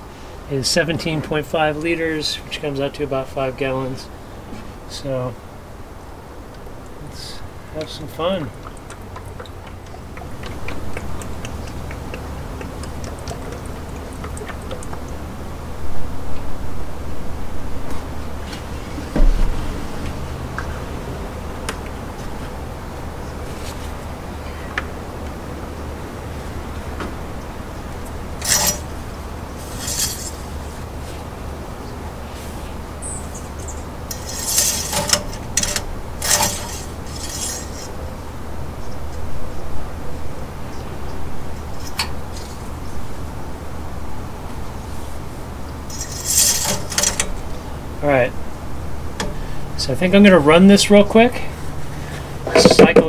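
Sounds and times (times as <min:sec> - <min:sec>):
steady low hum: 0:00.0 - 0:53.0
oil pouring through a funnel: 0:08.1 - 0:15.2
air bubbles glugging in jug: 0:08.4 - 0:15.2
plastic jug and funnel handling: 0:52.4 - 0:53.0.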